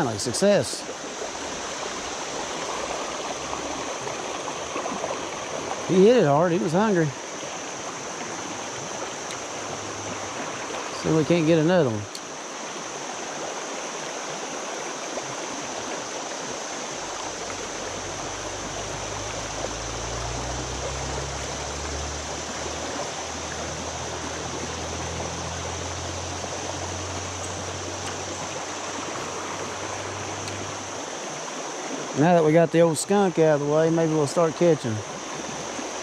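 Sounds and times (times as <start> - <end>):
river water rushing: 0.0 - 36.0
low steady hum: 16.9 - 31.3.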